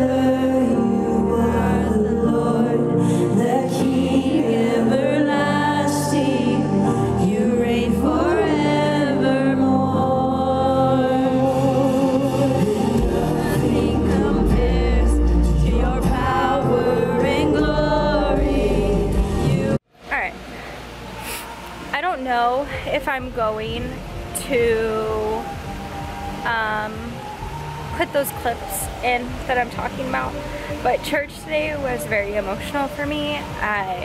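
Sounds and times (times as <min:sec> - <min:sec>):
live worship band and singers: 0:00.0 - 0:19.8
deep bass: 0:11.4 - 0:19.8.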